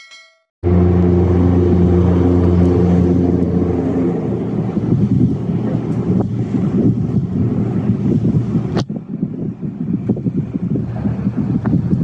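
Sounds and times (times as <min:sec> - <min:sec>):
boat diesel engine drone: 0:00.6 - 0:12.0.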